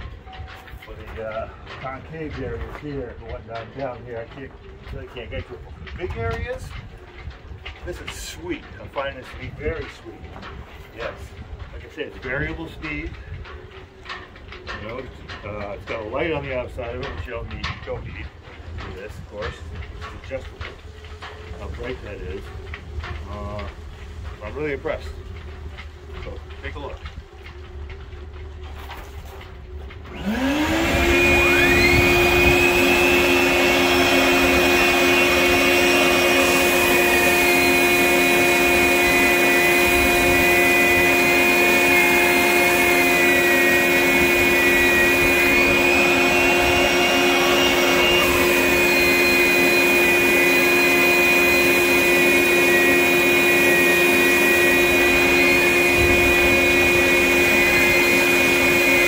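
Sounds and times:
shop vacuum running: 0:00.0 - 0:59.0
electric sander whining: 0:30.0 - 0:59.0.

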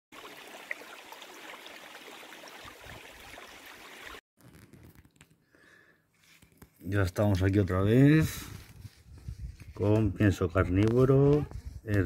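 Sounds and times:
stream water rushing: 0:00.2 - 0:04.2.

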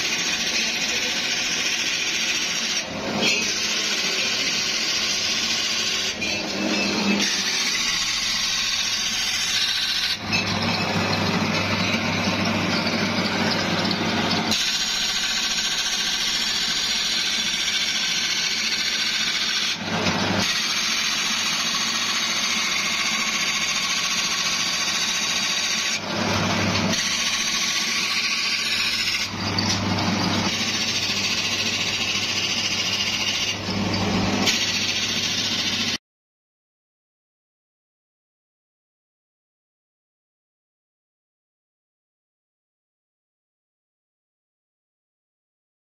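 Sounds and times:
grinding disc on steel blade: 0:00.0 - 0:36.0.

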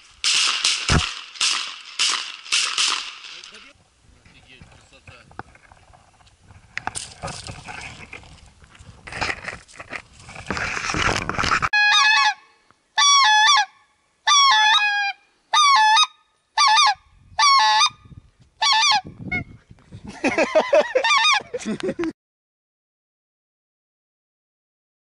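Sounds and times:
brush rustling: 0:00.0 - 0:11.7.

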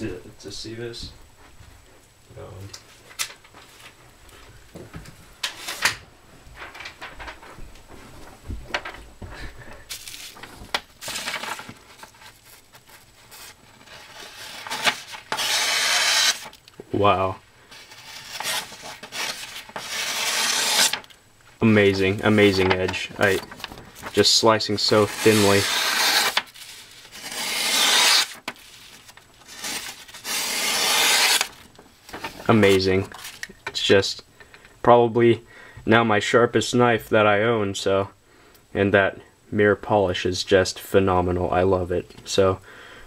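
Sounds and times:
paper rustling and crinkling: 0:05.5 - 0:09.1, 0:09.8 - 0:16.6, 0:17.7 - 0:21.2, 0:21.8 - 0:33.6
knife slicing through paper: 0:12.4 - 0:16.5, 0:17.8 - 0:21.1, 0:24.9 - 0:31.6.

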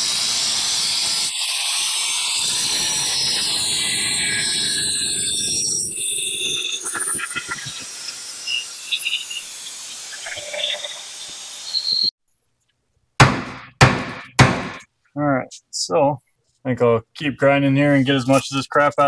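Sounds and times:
angle grinder cutting steel: 0:00.0 - 0:12.1.

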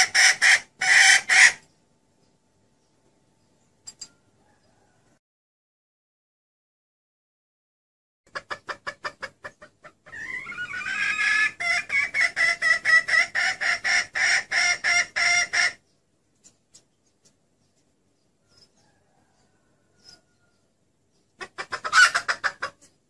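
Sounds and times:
hen clucking: 0:00.0 - 0:01.7, 0:08.3 - 0:23.0.

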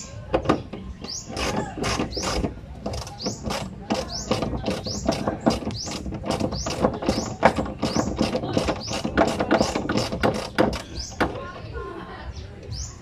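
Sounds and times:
ratchet wrench clicking: 0:01.1 - 0:11.2.

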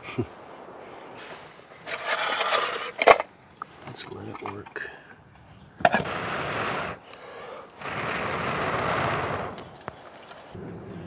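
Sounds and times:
person blowing on coals: 0:05.9 - 0:09.9.

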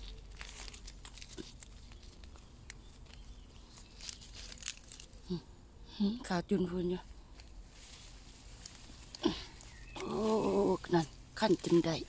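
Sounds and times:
mushroom tearing off a log: 0:00.0 - 0:05.3.

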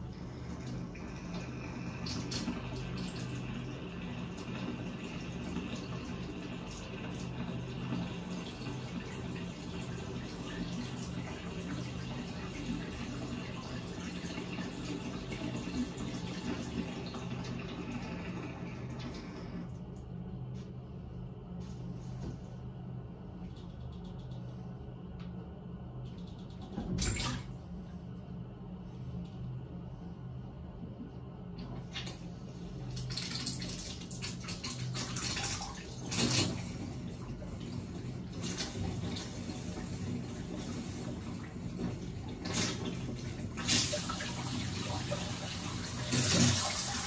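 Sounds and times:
water running into bathtub: 0:00.0 - 0:19.7, 0:31.6 - 0:47.0
low steady hum: 0:00.0 - 0:47.0.

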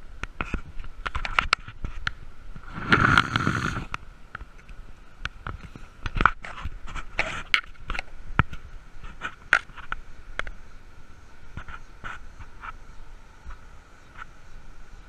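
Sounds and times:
steady high whine: 0:00.0 - 0:15.0
wheel bearing scraping and knocking: 0:02.6 - 0:04.0.

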